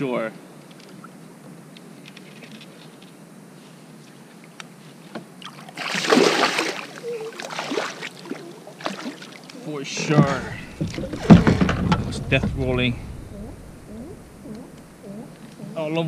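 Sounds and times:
fish splashing in water: 5.5s - 15.0s
faint clicks: 13.2s - 15.7s.

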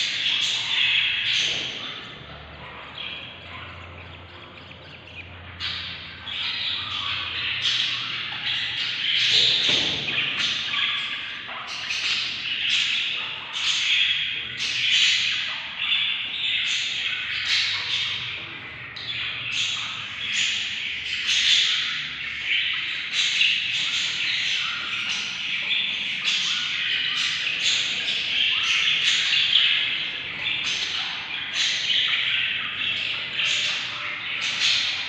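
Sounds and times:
chicks raspy begging chatter: 0.0s - 9.6s.

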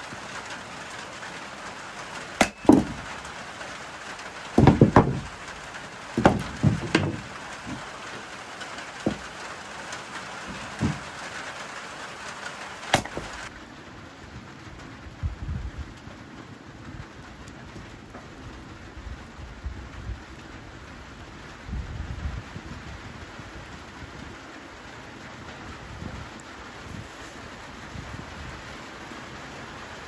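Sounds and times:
rain hiss: 0.0s - 30.0s
dull knocks and thuds: 2.4s - 3.1s, 4.5s - 5.5s, 6.1s - 9.5s, 10.4s - 11.4s, 12.9s - 13.5s.

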